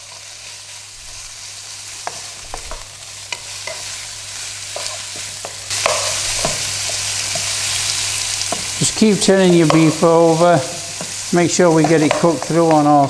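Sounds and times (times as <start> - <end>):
meat sizzling in oil: 0.0 - 13.0
spatula knocking and scraping pan: 2.0 - 4.0, 4.7 - 7.6, 8.4 - 8.8, 9.6 - 10.1, 10.9 - 13.0.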